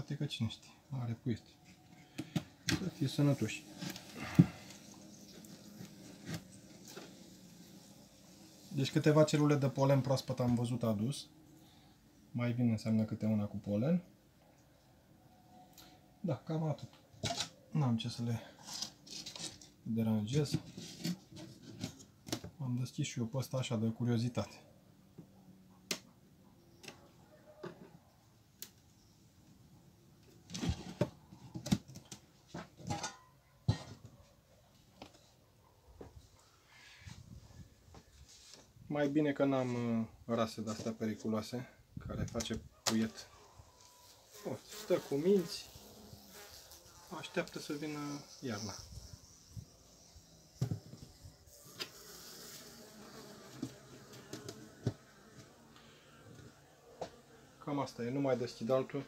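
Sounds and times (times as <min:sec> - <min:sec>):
bees buzzing faintly: 0:43.6 - 0:59.0.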